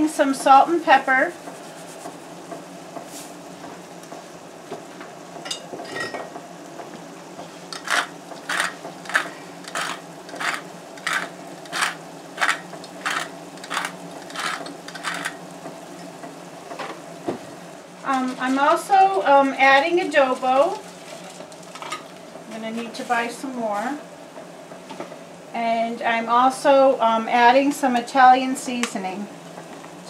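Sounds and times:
pepper mill grinding: 7.7s - 15.4s
salt shaker rattling: 7.8s - 15.4s.

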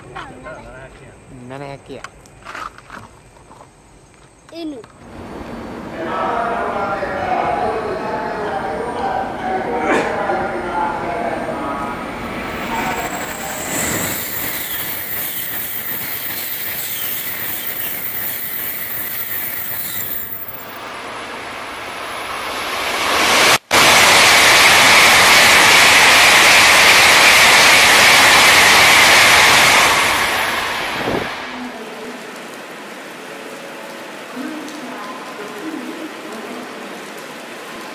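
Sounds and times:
high-speed trains rushing past: 5.0s - 32.1s.

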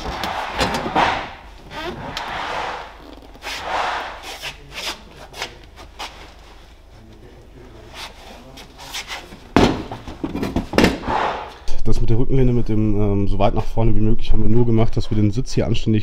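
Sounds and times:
loud thump: 0.0s - 3.0s.

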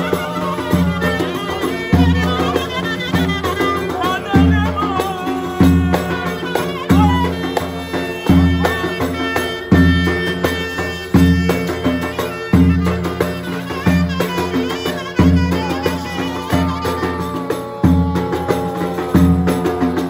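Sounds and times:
man singing: 0.0s - 9.7s, 13.8s - 20.0s
hand drum: 0.0s - 20.0s
wavering clarinet melody: 0.0s - 20.0s.

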